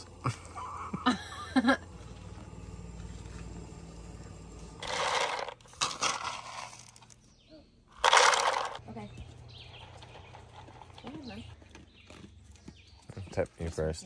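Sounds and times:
low steady hum: 0.0 - 6.7
dry scraping: 1.8 - 7.3, 8.0 - 11.6.

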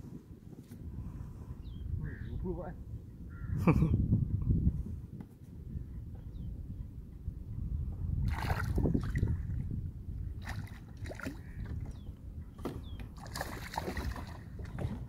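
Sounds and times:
fish splashing at the surface: 8.3 - 9.1, 13.2 - 15.0
water slapping: 8.3 - 9.4, 10.4 - 11.8, 13.1 - 15.0.

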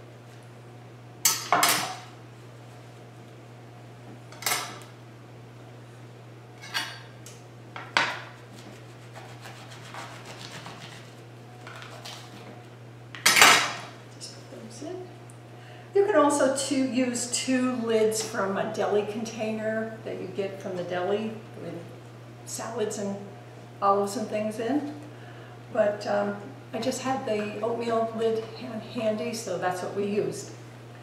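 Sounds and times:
steady low hum: 0.0 - 31.0
knife slicing on cutting board: 8.5 - 11.2.

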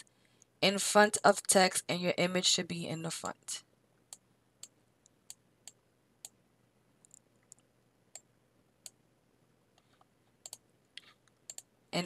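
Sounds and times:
computer mouse clicking: 7.0 - 9.0, 9.8 - 11.7.

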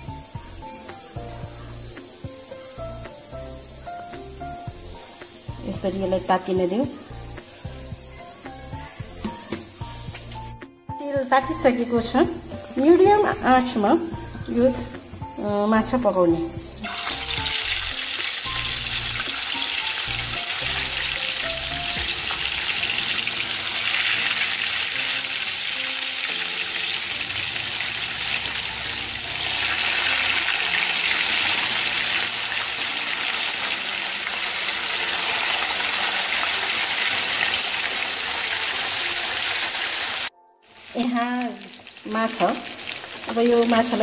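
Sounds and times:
fish frying in hot oil: 16.8 - 44.0.

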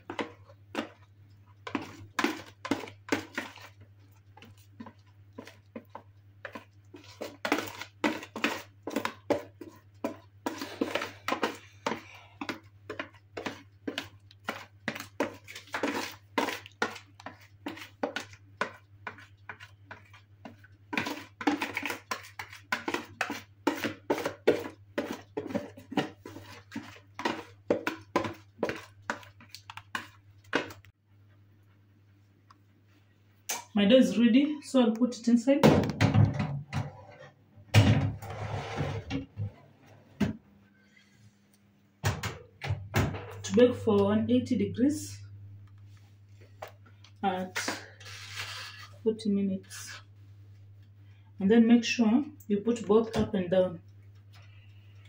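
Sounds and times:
utensil scraping mixing bowl: 0.0 - 30.9, 47.3 - 49.0.

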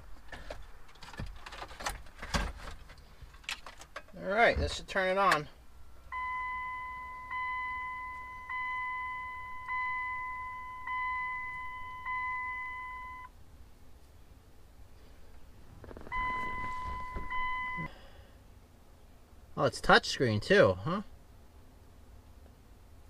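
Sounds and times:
dashboard warning chime: 6.1 - 13.3, 16.1 - 17.9
steady tone: 6.1 - 13.3, 15.9 - 17.9.

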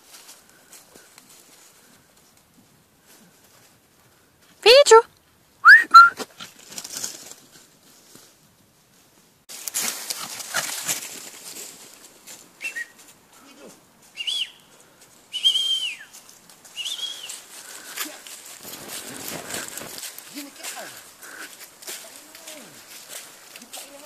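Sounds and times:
dry leaves rustling: 0.0 - 4.6, 6.2 - 24.0
puppy high-pitched calls: 5.6 - 6.2.

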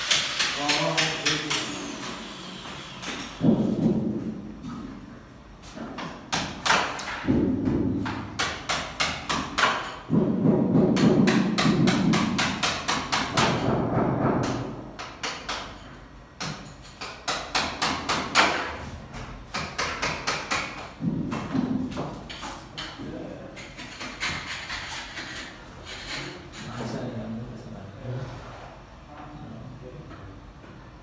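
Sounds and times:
knocking on wooden panels: 3.3 - 4.4, 5.8 - 15.7, 16.4 - 23.0.

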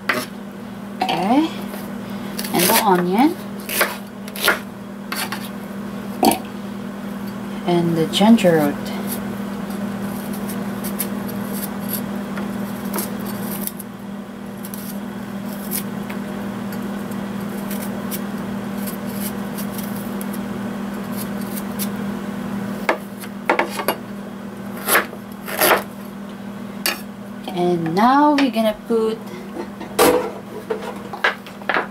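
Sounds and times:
knife scraping ginger: 1.6 - 5.6, 8.8 - 13.9, 14.6 - 16.0, 17.4 - 22.0, 24.7 - 26.0.

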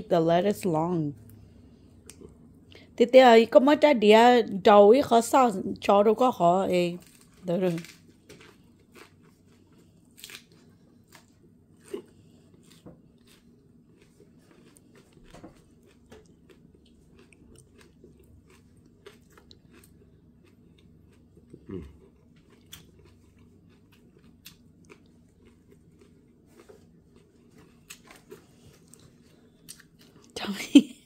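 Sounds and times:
person chewing crunchy food: 7.0 - 30.4.

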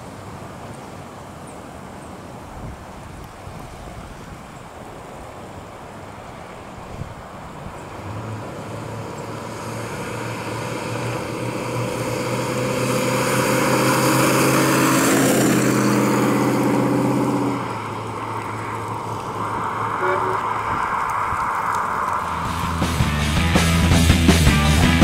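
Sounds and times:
car engine passing by: 6.1 - 25.0.

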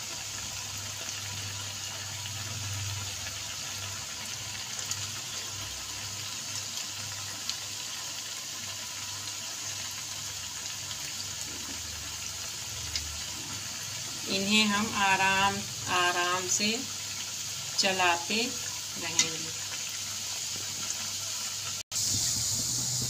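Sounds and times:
dough deep-frying in oil: 0.0 - 23.0.

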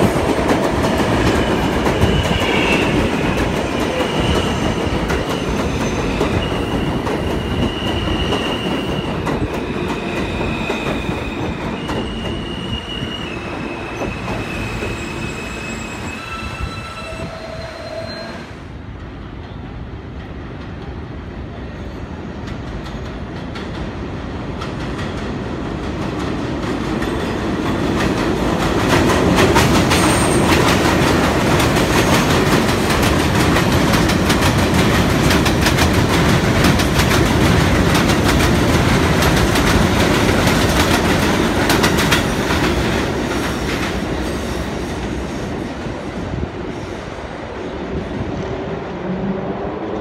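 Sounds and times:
train wheels clattering over rails: 22.4 - 46.0.

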